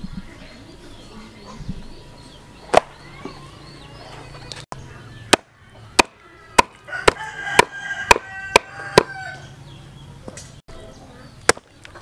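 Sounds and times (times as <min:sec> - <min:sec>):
cleaver chopping meat on wood: 0:05.3 - 0:09.2.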